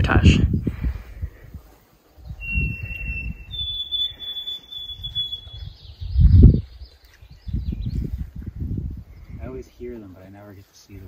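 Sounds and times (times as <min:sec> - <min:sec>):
bird whistling song: 0:02.2 - 0:08.1.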